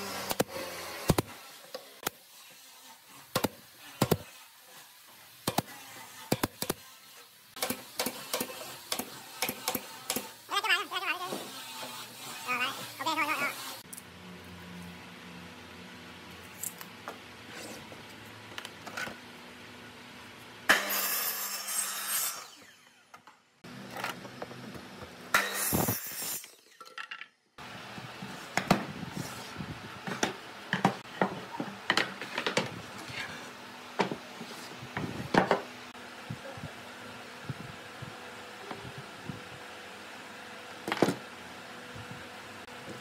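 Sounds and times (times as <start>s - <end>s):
miter saw cutting wood: 0.0s - 1.7s, 5.6s - 13.8s, 20.7s - 23.1s.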